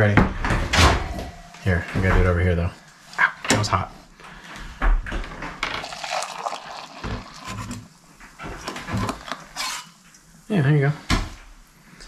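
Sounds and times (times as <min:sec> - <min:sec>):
water pouring into metal mugs: 0:05.7 - 0:09.8.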